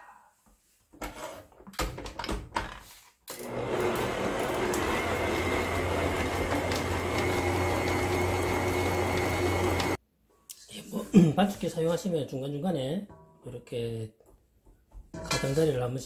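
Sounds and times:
stand mixer motor running: 3.4 - 10.0.

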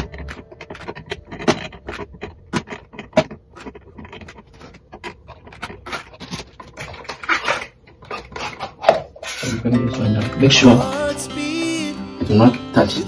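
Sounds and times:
metal tools clicking and tapping: 0.0 - 4.8
rustling and scraping: 0.0 - 9.7.

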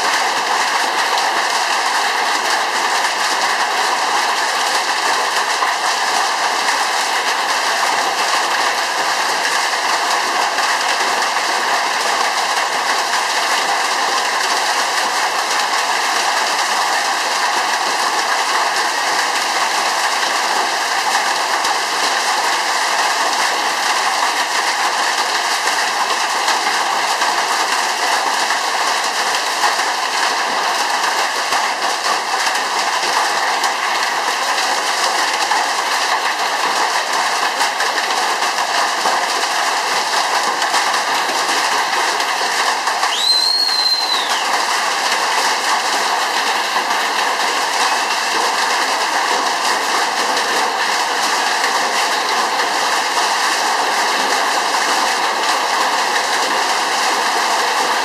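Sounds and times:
hail and rain pelting down: 28.4 - 58.0.

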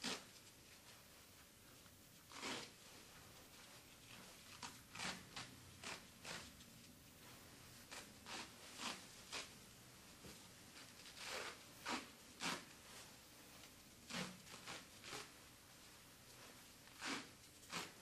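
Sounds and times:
bandage rustling: 0.0 - 18.0.

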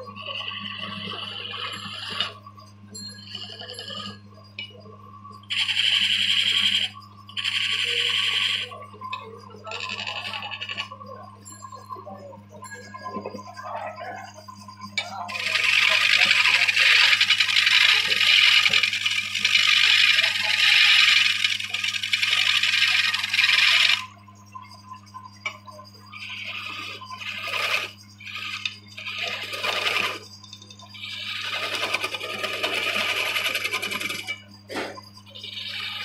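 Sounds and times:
constant low hum: 0.0 - 36.0
woodworking machine cutting wood: 5.5 - 8.7, 15.3 - 24.2, 26.3 - 30.2, 31.0 - 34.9.

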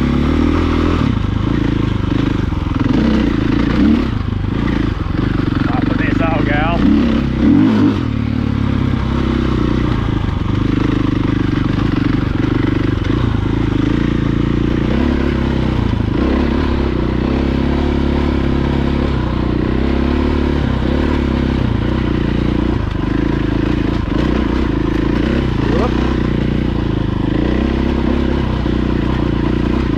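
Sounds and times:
dirt bike engine running: 0.0 - 29.9.

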